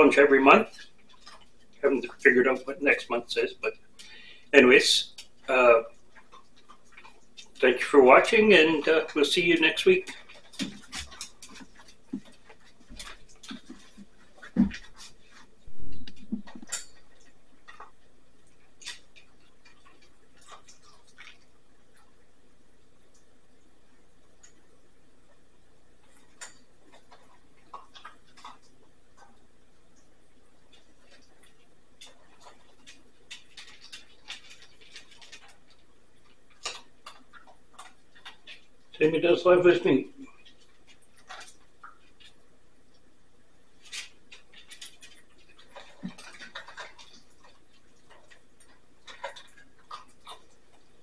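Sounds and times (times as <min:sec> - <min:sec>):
parrot beak clicks and crunches: 0:16.1 - 0:21.5.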